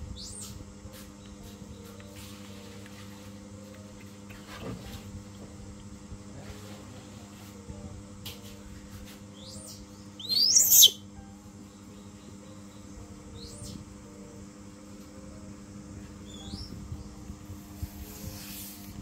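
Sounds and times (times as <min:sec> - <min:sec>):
baby monkey squealing: 0:10.2 - 0:11.0.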